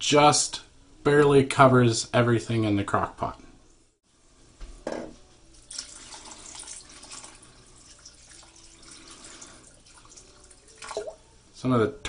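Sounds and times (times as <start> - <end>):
water pouring and splashing: 5.5 - 11.2.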